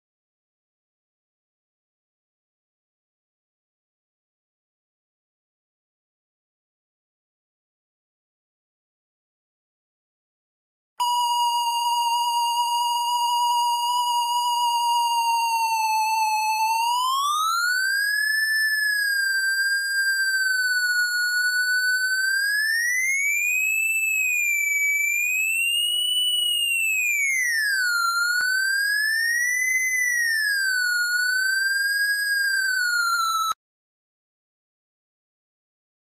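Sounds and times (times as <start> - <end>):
signal detector whistling tone: 11.0 - 33.6.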